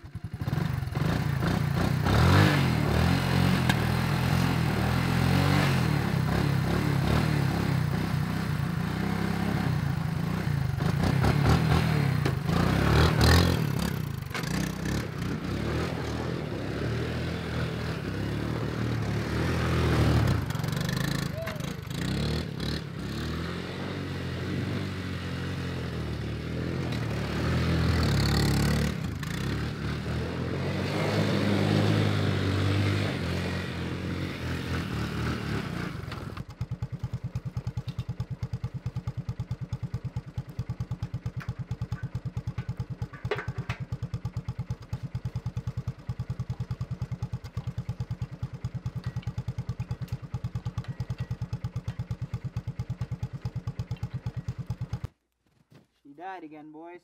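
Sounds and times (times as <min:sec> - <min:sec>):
engine revving: 0:00.3 - 0:36.5.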